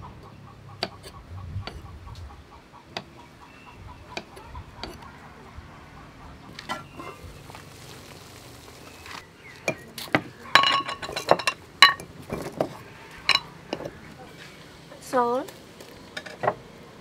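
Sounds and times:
glass jars clinking: 0:10.5 - 0:14.0.

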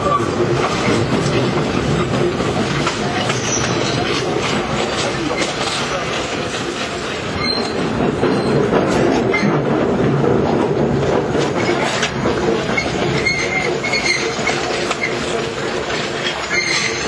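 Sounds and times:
subway car wheels clattering: 0:00.0 - 0:17.0
wheel squeal: 0:03.3 - 0:04.2, 0:07.4 - 0:08.6, 0:12.7 - 0:15.3, 0:16.3 - 0:17.0.

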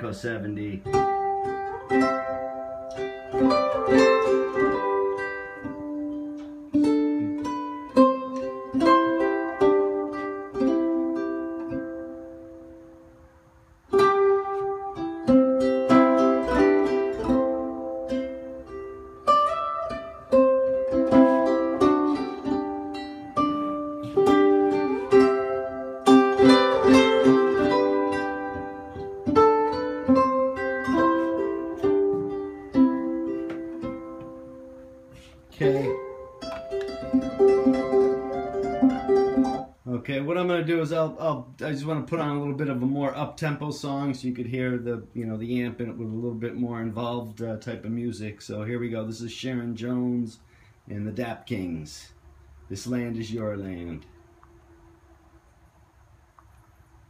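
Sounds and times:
plucked-string music over speakers: 0:00.0 - 0:12.9, 0:13.9 - 0:39.8.

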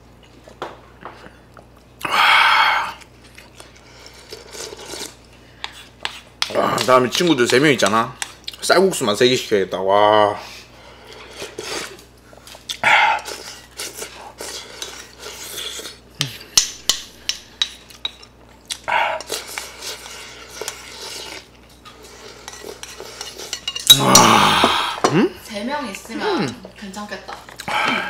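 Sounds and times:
person slurping: 0:02.0 - 0:03.1, 0:12.7 - 0:16.5, 0:23.8 - 0:25.4
wooden spoon scraping bowl: 0:19.2 - 0:24.0.

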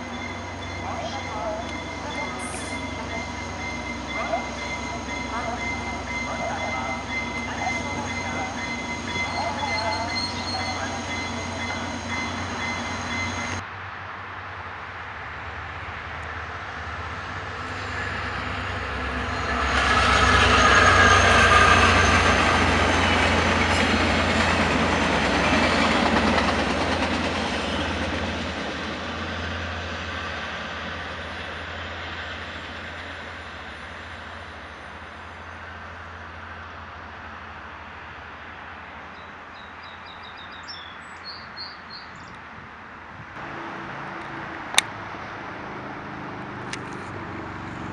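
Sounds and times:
train wheels on rails: 0:00.0 - 0:13.6, 0:17.3 - 0:35.4
diesel locomotive passing: 0:00.0 - 0:14.1, 0:15.0 - 0:42.2, 0:43.0 - 0:47.9.

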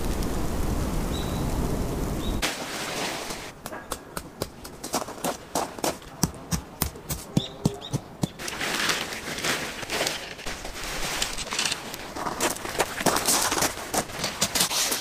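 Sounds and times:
canvas rustling and dragging: 0:02.4 - 0:03.6, 0:08.4 - 0:15.0
footsteps on gravel: 0:02.5 - 0:06.2, 0:07.1 - 0:15.0.

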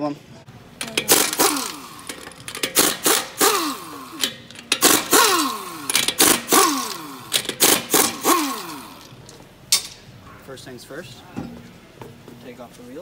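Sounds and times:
pneumatic impact wrench hammering: 0:00.8 - 0:09.2.

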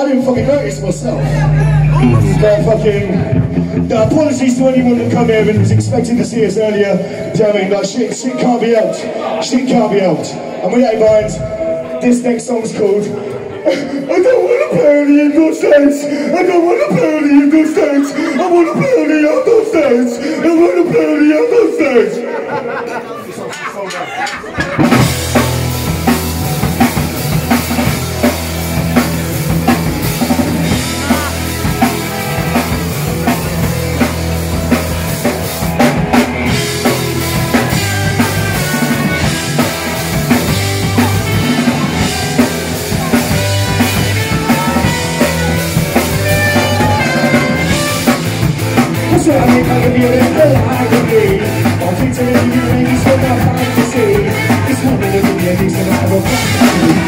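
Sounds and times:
drum kit: 0:00.0 - 0:06.9, 0:24.3 - 0:57.0
live rock band playing: 0:00.0 - 0:22.8, 0:24.2 - 0:57.0
horns: 0:36.3 - 0:49.1.

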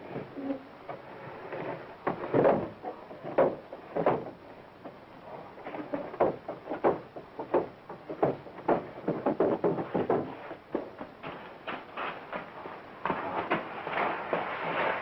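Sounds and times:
heavy footsteps on wooden stairs: 0:06.1 - 0:14.5.

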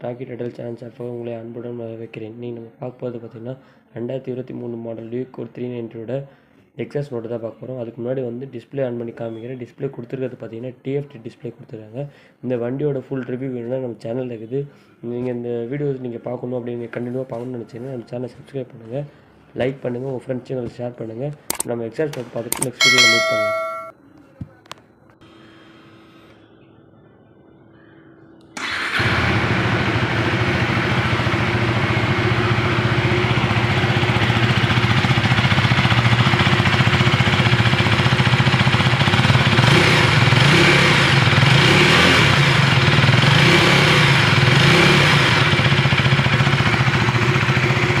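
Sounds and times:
motorcycle engine starting and running: 0:28.6 - 0:48.0.

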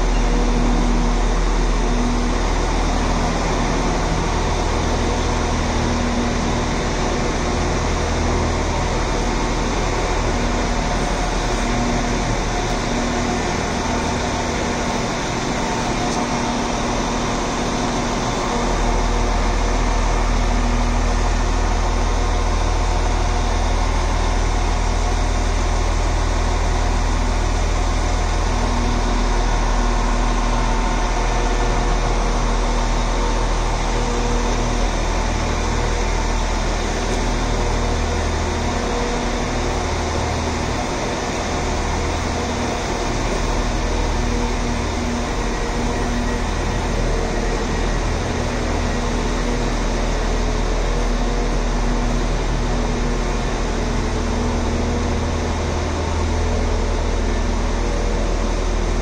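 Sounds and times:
deep mechanical hum: 0:00.0 - 0:59.0.

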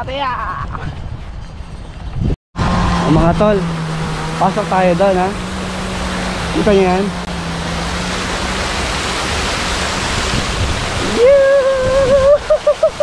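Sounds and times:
splashing water: 0:02.9 - 0:13.0.

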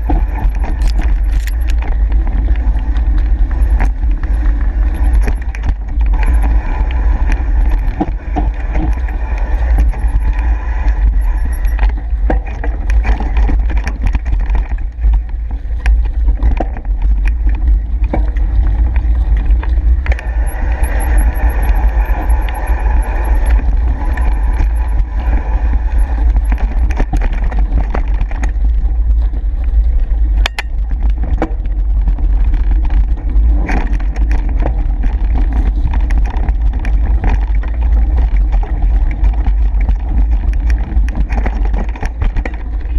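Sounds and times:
bike rattling over bumps: 0:00.0 - 0:42.9
wind buffeting microphone: 0:00.0 - 0:42.9
tyre rumble over dirt: 0:11.9 - 0:20.3, 0:23.5 - 0:42.9.

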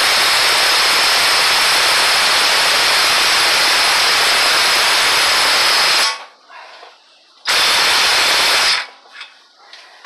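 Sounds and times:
impact wrench running: 0:00.0 - 0:06.3, 0:07.5 - 0:08.9.

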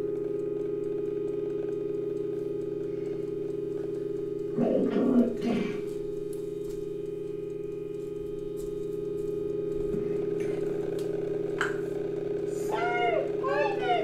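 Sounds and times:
low hum of held tones: 0:00.0 - 0:14.0
faint clicks: 0:00.1 - 0:04.5.

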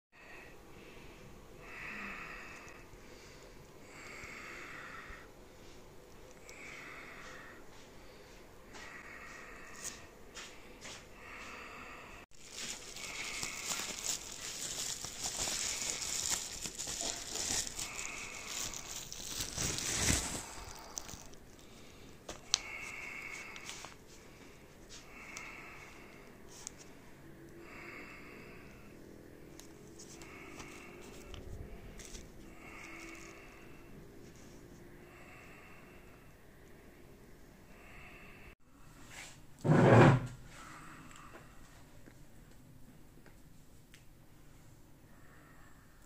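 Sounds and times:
soft slow breathing: 0:00.2 - 0:39.5, 0:40.4 - 0:42.4, 0:44.4 - 0:46.0
bubble wrap crinkling: 0:12.3 - 0:24.1, 0:29.6 - 0:33.6.

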